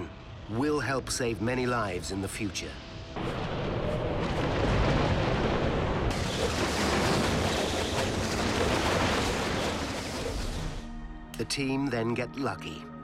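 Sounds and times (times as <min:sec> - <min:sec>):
tornado wind rushing rumble: 0:02.8 - 0:10.8.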